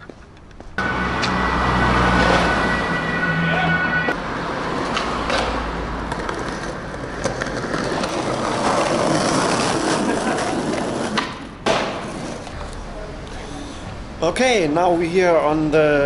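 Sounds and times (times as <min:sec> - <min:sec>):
skateboard wheels rolling: 0:04.4 - 0:13.8.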